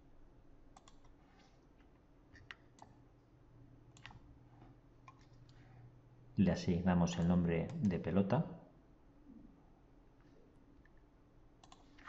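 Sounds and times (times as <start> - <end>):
low room hum: 0.0 - 12.0
computer mouse clicks: 0.7 - 3.0, 3.9 - 4.3, 5.0 - 5.7, 11.6 - 12.0.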